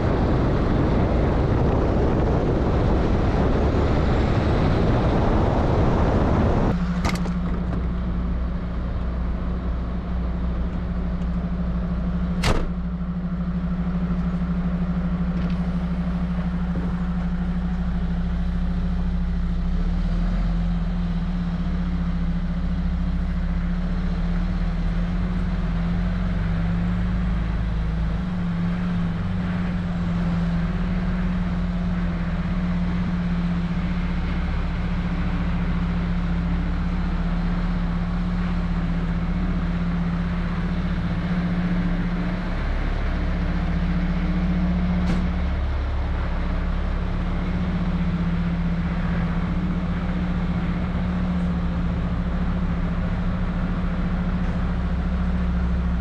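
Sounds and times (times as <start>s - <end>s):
truck engine and road drone: 0.0s - 56.0s
sharp click: 12.4s - 12.8s.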